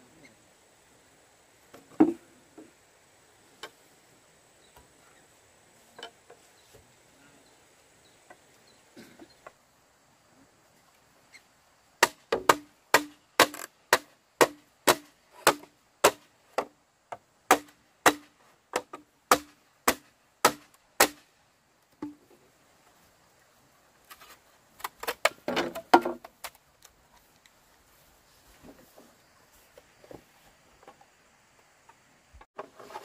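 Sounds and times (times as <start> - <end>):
chopping strikes with dull thud: 12.0 - 16.7, 17.5 - 21.2.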